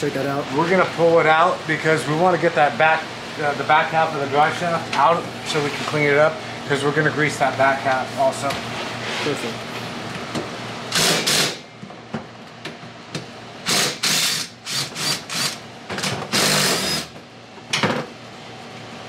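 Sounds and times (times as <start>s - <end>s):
power tool bursts: 10.9s - 11.6s, 13.6s - 17.2s.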